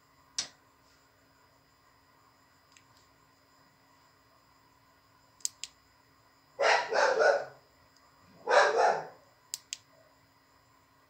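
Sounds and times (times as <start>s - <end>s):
quick sharp clicks: 5.4s - 5.8s, 9.5s - 9.9s
dog barking: 6.6s - 7.6s, 8.4s - 9.2s.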